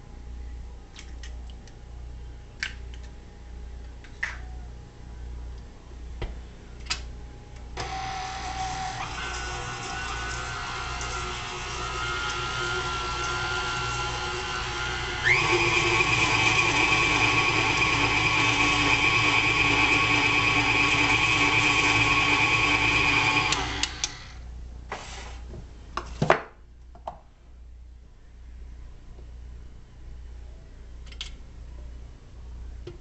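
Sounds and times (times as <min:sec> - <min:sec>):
stand mixer motor whining: 0:07.8 - 0:24.3.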